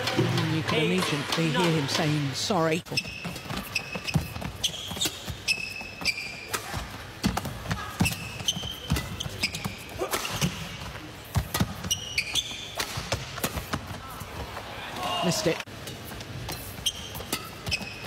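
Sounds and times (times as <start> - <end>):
shoes squeaking on court: 0.0 - 13.9, 15.8 - 18.0
racket hitting shuttlecock: 11.3 - 13.9.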